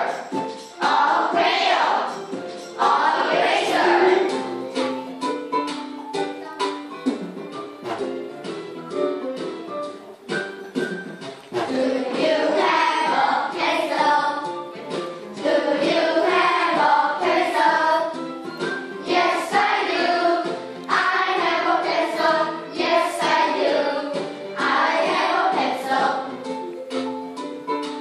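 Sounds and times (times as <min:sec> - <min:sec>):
children singing together: 0:00.0 - 0:02.2, 0:02.8 - 0:04.5, 0:11.6 - 0:18.2, 0:19.0 - 0:26.3.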